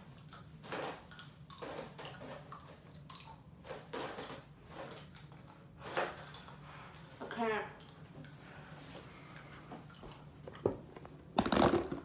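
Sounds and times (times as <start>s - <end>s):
people eating hard candies: 0.2s - 7.2s.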